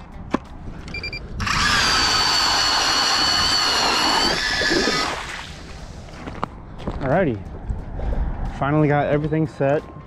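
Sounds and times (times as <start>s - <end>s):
powered ice auger whining: 1.4s - 5.2s.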